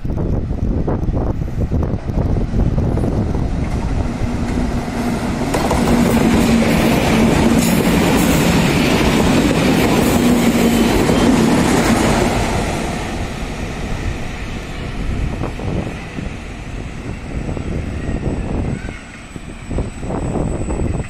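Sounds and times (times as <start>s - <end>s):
low locomotive hum: 0.0s - 21.0s.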